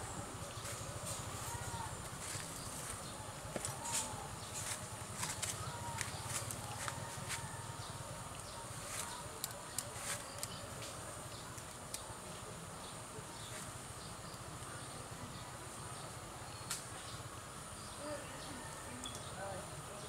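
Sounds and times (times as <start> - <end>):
pruning shears snipping twigs: 8.3 - 11.0.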